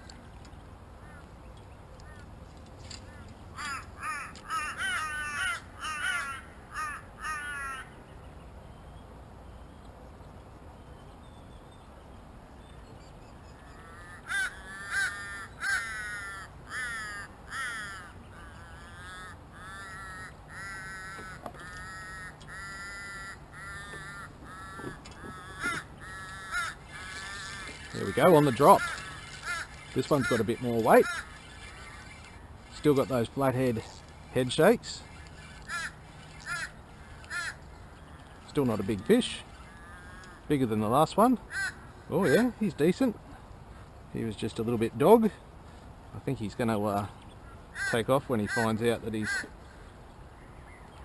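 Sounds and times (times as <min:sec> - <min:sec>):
crow cawing: 0:03.1 - 0:07.9, 0:13.7 - 0:32.3, 0:35.4 - 0:37.6, 0:38.2 - 0:40.5, 0:41.5 - 0:42.6, 0:47.4 - 0:49.8.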